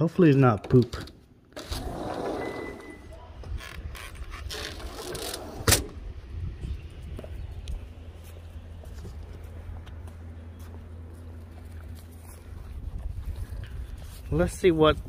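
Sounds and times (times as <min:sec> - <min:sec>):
door squeak: 0:01.6 - 0:05.8.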